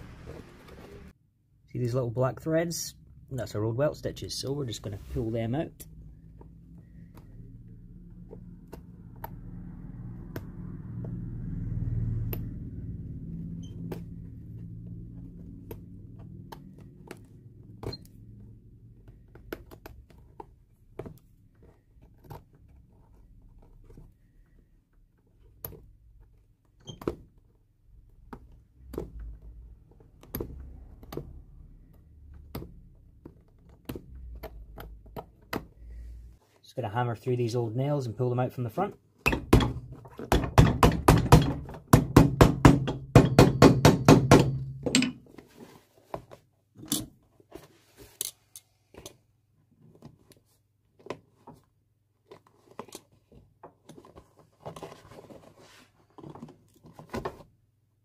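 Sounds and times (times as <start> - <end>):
low handling rumble: 0.0 - 1.1.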